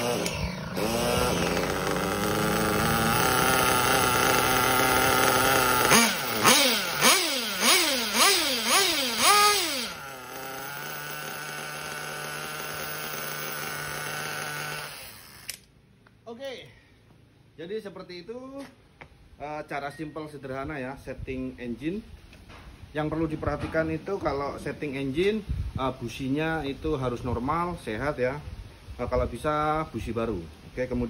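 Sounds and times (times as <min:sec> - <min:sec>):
small nitro engine revving: 0:00.0 - 0:15.6.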